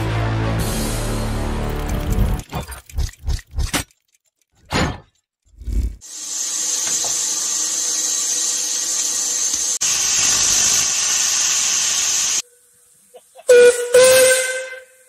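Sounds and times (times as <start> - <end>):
steam hissing: 6.0 - 15.0.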